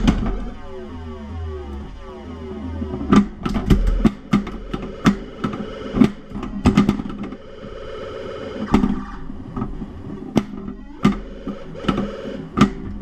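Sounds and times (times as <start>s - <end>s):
pinball flippers and ball clacking: 0.0s - 0.7s, 2.8s - 7.7s, 8.6s - 13.0s
electronic sound effects: 0.0s - 12.6s.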